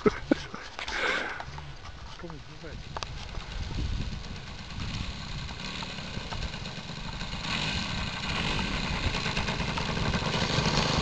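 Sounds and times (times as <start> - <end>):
model airplane engine running: 2.9 - 11.0.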